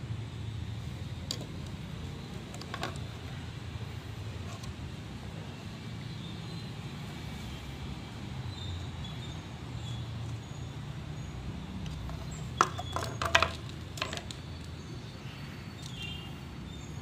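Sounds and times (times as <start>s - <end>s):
plastic fittings clacking on concrete: 1.2s - 3.4s, 11.8s - 14.7s.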